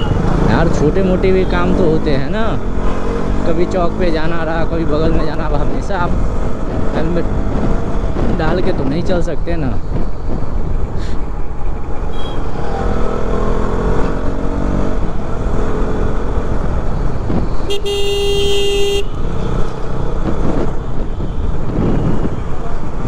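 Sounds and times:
wind rumble on microphone: 3.9s - 12.0s, 16.1s - 17.8s, 19.1s - 23.0s
motorcycle engine accelerating: 9.9s - 17.6s
vehicle horn: 12.1s - 12.6s, 17.7s - 19.2s.

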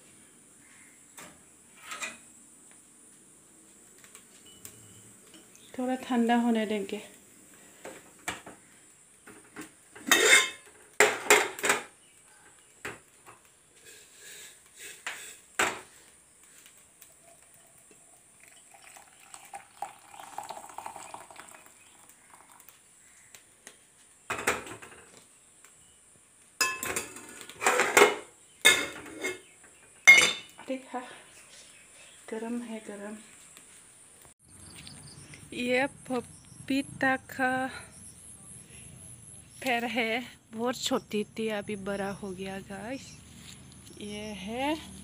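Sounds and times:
steel pots and cups clanking: 10.0s - 11.9s, 18.4s - 22.6s, 26.6s - 30.6s
water poured into a glass: 18.4s - 22.7s.

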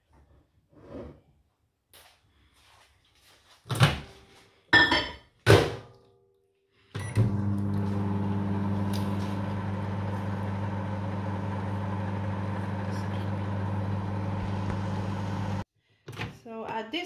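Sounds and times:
microwave oven humming: 7.0s - 15.6s.

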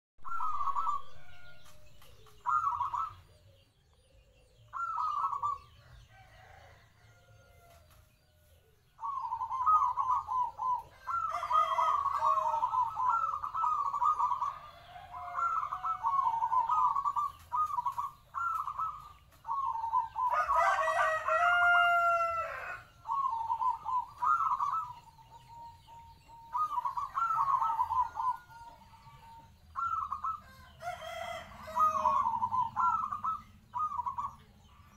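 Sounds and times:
dove cooing: 0.2s - 7.7s, 9.0s - 34.9s
rooster crowing: 5.8s - 7.9s, 10.9s - 13.2s, 14.1s - 16.7s, 20.2s - 23.2s, 30.2s - 32.7s.

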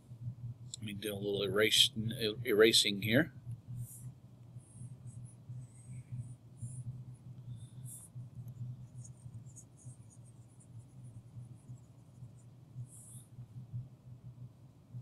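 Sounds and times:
low electrical hum: 0.0s - 15.0s
stylus scratching on pen tablet: 3.8s - 13.4s.

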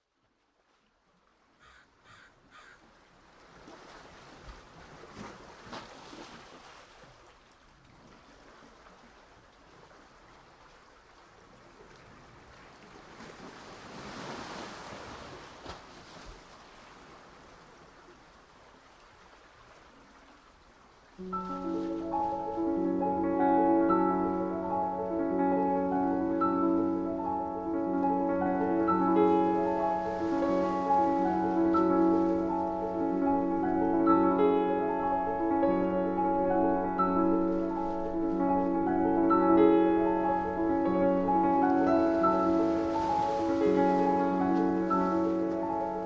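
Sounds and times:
piano music: 21.2s - 46.0s
steady rushing wash: 21.2s - 46.0s.

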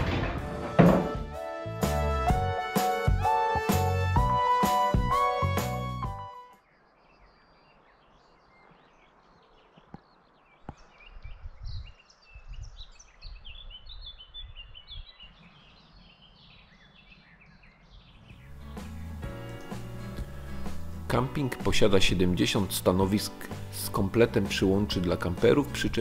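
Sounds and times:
small birds chirping: 6.6s - 21.0s
wind rumble on microphone: 10.6s - 16.0s.

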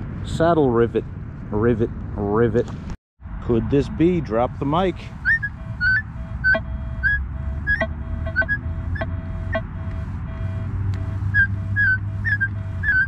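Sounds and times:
lower pulsing tone: 5.2s - 13.0s
metal detector high beeps: 5.2s - 13.0s.

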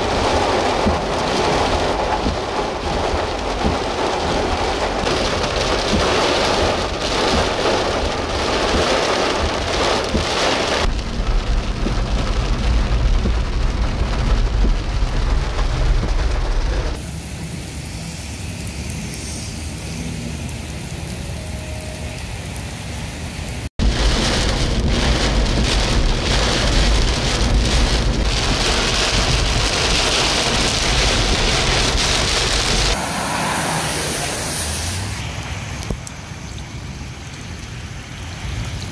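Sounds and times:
deep thunder rumbling: 0.0s - 17.0s, 23.8s - 36.0s
heavy rain and wind: 0.0s - 38.9s
rain on car windshield: 0.0s - 38.9s
rain pattering on wet street: 0.0s - 38.9s.

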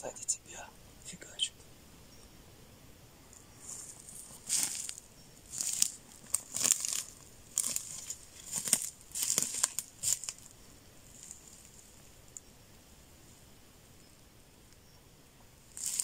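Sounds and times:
footsteps crunching on twigs: 3.6s - 10.5s, 11.1s - 12.0s, 15.7s - 16.0s
sticks snapping underfoot: 4.5s - 10.5s, 15.8s - 16.0s.

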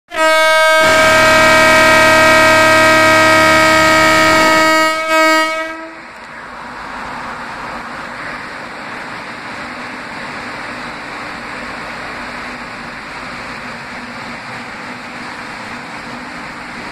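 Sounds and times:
high locomotive horn: 0.1s - 6.1s
lower-toned locomotive horn: 0.1s - 6.1s
steady rushing noise: 3.0s - 16.9s.

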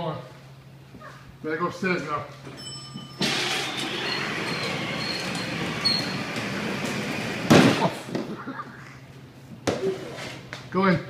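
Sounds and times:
toy car motor and wheels rumbling: 3.2s - 7.5s.

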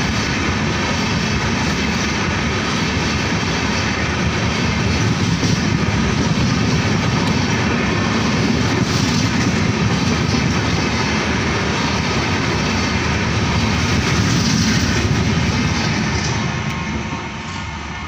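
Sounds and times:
train wheels rushing on rails: 0.0s - 18.0s.

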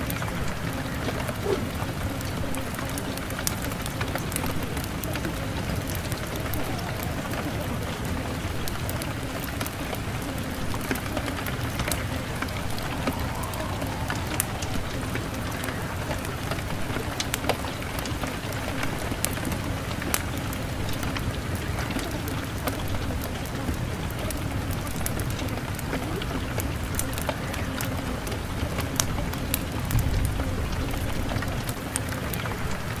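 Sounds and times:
low steady hum: 0.0s - 33.0s
rain patter: 0.0s - 33.0s
sharp raindrops: 0.0s - 33.0s.

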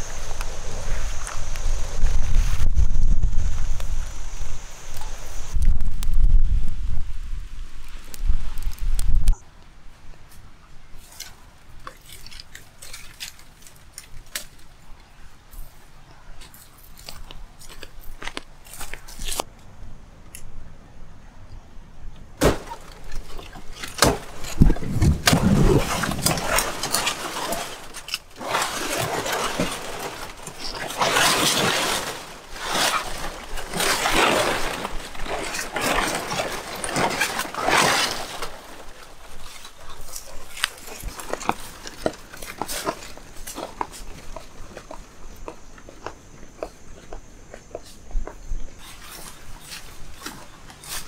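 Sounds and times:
palm fronds cracking and snapping: 11.0s - 14.7s, 16.4s - 19.5s, 22.4s - 45.0s
dull thumps: 22.4s - 32.3s
leaves rustling swishes: 22.4s - 44.3s, 48.8s - 51.0s.

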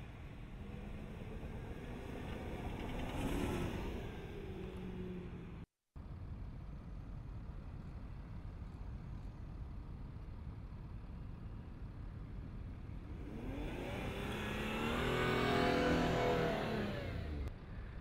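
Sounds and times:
car engine under load: 0.0s - 5.7s, 13.0s - 17.5s.

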